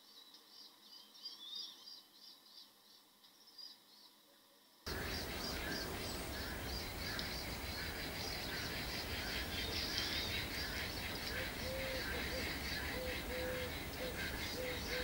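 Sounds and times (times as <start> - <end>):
low background noise: 0.0 - 15.0
birds chirping: 4.9 - 15.0.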